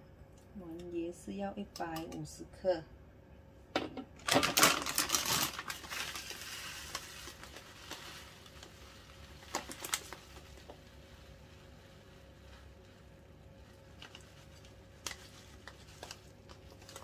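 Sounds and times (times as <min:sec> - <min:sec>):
coconut shreds falling into bowl: 0:04.2 - 0:17.0
plastic packet crinkling: 0:04.2 - 0:17.0.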